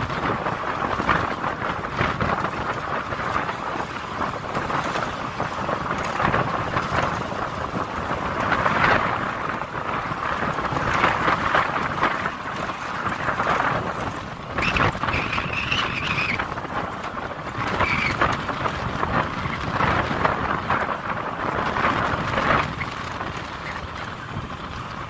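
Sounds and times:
wind rushing on microphone: 0.0 - 25.0.

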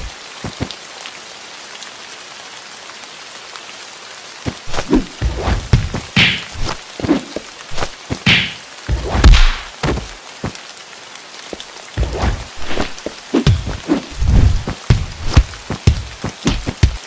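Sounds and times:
rain-like hiss: 0.0 - 17.0
heavy thuds and sharp knocks: 4.5 - 7.2, 7.8 - 10.2, 12.0 - 17.0.

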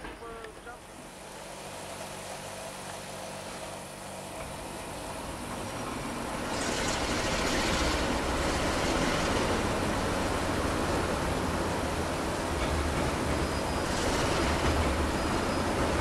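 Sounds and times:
diesel train engine rumble: 0.0 - 16.0
loud rushing noise: 5.2 - 16.0.

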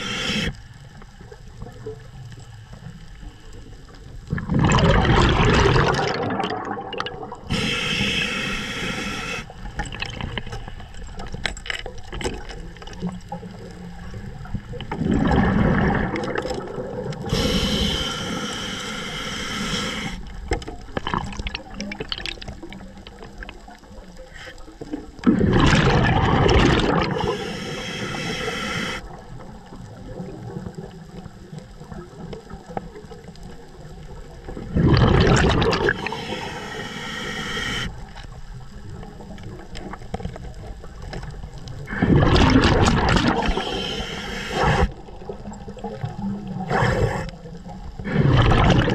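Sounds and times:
regulator hissing inhalations: 0.0 - 0.6, 7.5 - 9.5, 17.3 - 20.3, 27.1 - 29.0, 35.9 - 38.0, 43.4 - 45.0
exhaled bubbles rumbling: 3.7 - 7.7, 9.5 - 18.1, 20.3 - 36.6, 37.9 - 48.9.

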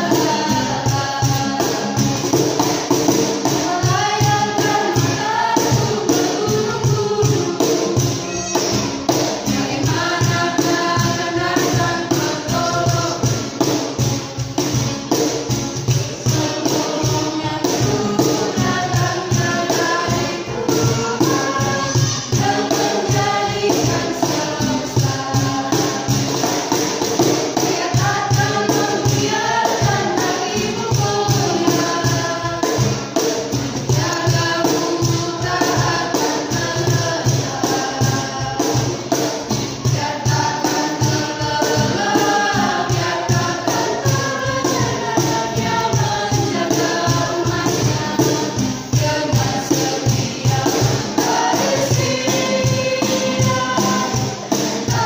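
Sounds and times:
cajon beat: 0.0 - 55.0
group singing worship song: 0.0 - 55.0
strummed acoustic guitar: 0.0 - 55.0.

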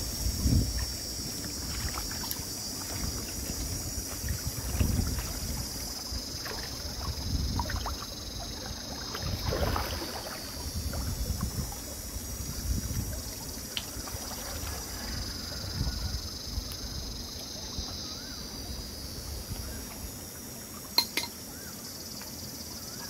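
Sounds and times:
steady high hiss: 0.0 - 9.2, 10.0 - 23.0
wind buffeting microphone: 0.0 - 18.0.

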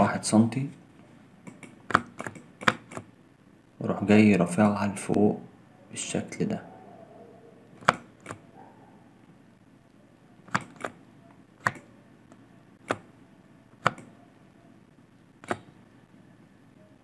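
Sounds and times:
computer mouse clicks: 1.4 - 3.1, 7.8 - 8.4, 10.5 - 13.1, 13.8 - 14.2, 15.4 - 15.8.

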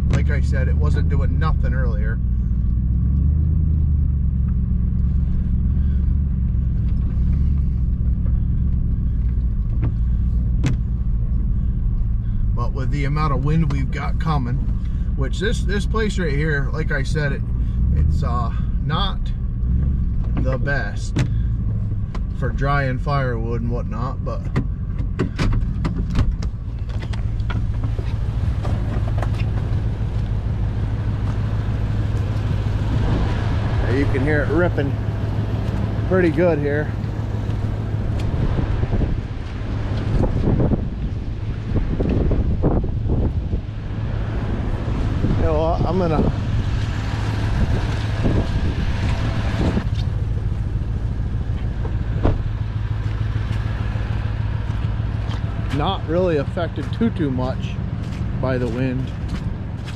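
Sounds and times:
vehicle engine and tyres rumbling: 0.0 - 59.9
sharp clicks and knocks: 24.4 - 29.7
strong wind gusting: 32.6 - 34.2, 38.0 - 49.9.

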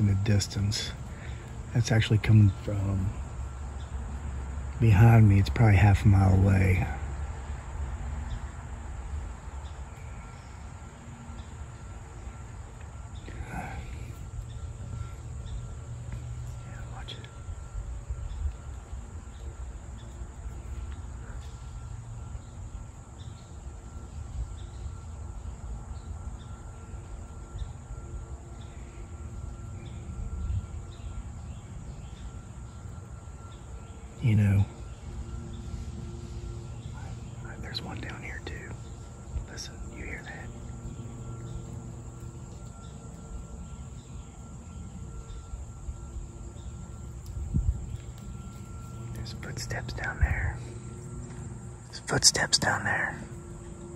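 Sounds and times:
distant engine drone: 0.0 - 53.9
high insect hum: 0.0 - 53.9
faint footsteps in dry leaves: 40.5 - 49.5.

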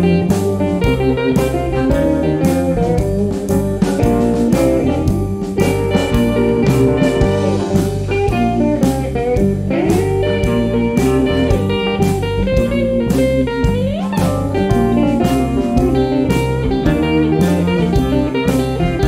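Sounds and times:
blues band playing live: 0.0 - 19.0
amplified harmonica: 4.9 - 19.0.

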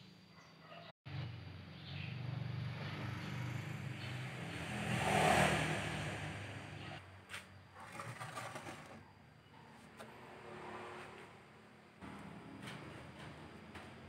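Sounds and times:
vehicle engine passing: 1.1 - 7.0, 10.1 - 14.0.

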